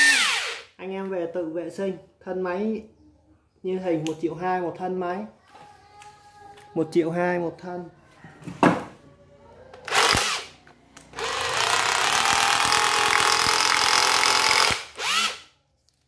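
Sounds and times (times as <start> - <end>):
rotary hammer drill running: 0.0 - 0.7, 9.9 - 10.5, 11.2 - 15.4.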